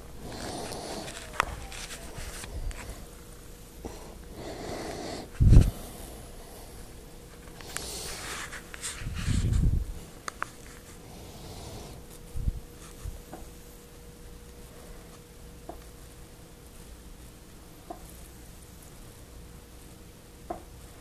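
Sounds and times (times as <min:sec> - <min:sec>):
cat fur rubbing microphone: 0:00.2 - 0:03.1, 0:04.4 - 0:05.9, 0:07.3 - 0:13.3.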